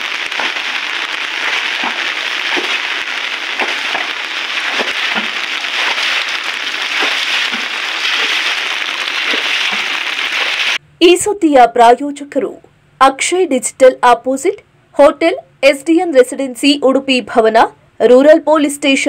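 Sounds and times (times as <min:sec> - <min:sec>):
rain falling: 0:00.0 - 0:10.8
raindrops ticking: 0:00.0 - 0:10.8.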